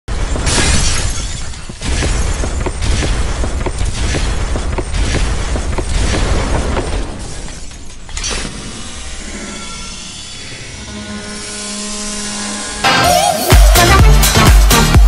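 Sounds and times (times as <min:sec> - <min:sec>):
glass shattering crash: 0:00.1 - 0:08.6.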